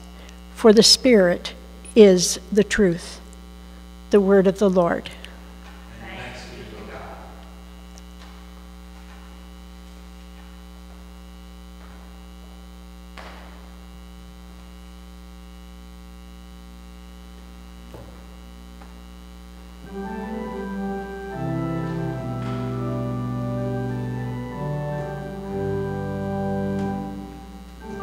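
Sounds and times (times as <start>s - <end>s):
electrical mains hum: 0.0s - 28.0s
organ playing sustained chords: 19.8s - 28.0s.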